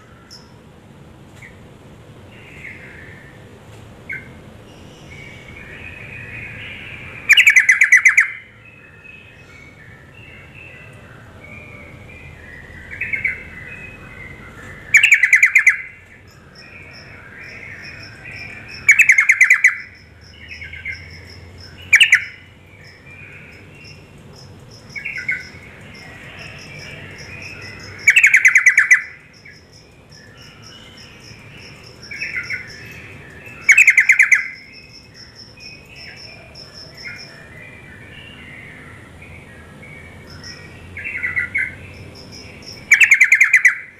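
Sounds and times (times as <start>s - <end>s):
bird chattering calls: 4.1s - 8.5s, 14.7s - 37.3s, 40.3s - 43.9s.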